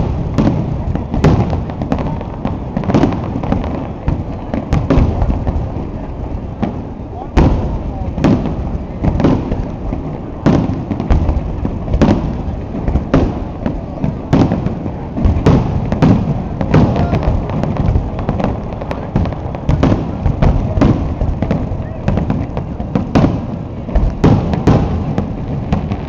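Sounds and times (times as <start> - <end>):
fireworks booming: 0.0 - 26.0.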